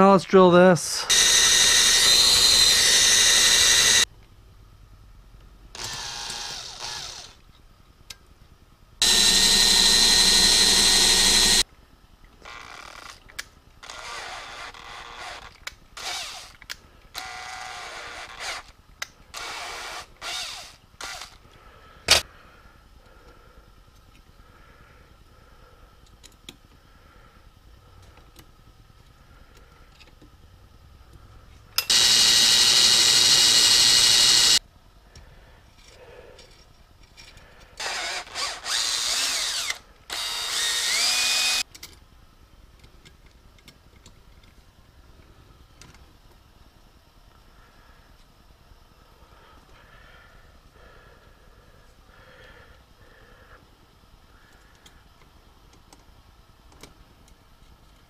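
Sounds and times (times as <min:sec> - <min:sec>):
cordless drill boring metal: 0:01.0 - 0:04.1, 0:05.8 - 0:07.4, 0:09.0 - 0:11.6, 0:13.8 - 0:16.6, 0:17.2 - 0:18.7, 0:19.4 - 0:21.4, 0:31.8 - 0:34.6, 0:37.8 - 0:41.7.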